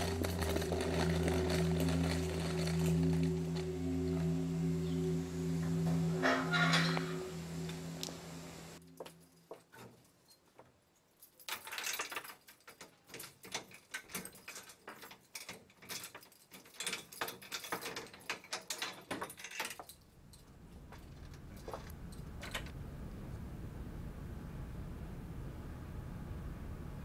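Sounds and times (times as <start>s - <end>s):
held musical tone: 0.0s - 9.5s
keys jangling against padlock: 8.9s - 20.5s.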